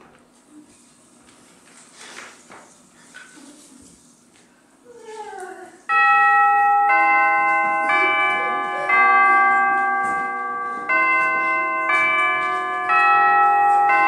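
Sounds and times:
bell chimes playing slow melody: 5.9s - 14.0s.

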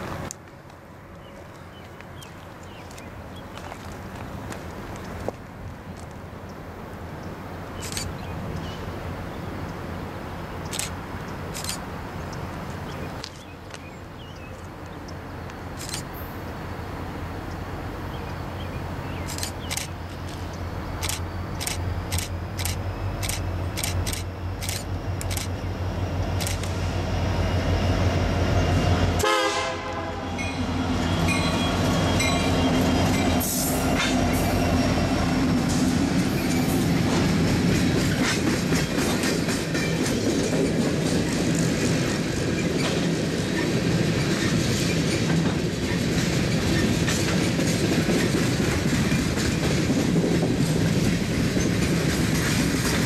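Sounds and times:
diesel locomotives droning: 6.3s - 53.0s
train wheels clickety-clack: 19.3s - 25.6s, 26.2s - 26.8s, 31.2s - 53.0s.

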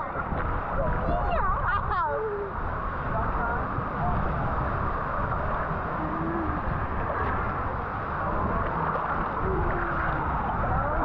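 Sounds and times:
faint voices: 0.0s - 11.0s
low rumbling noise: 0.0s - 11.0s.

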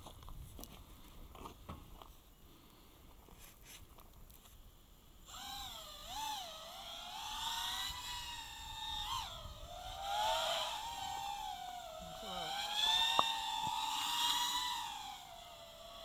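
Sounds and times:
drone motors and propellers whining: 4.9s - 16.0s.

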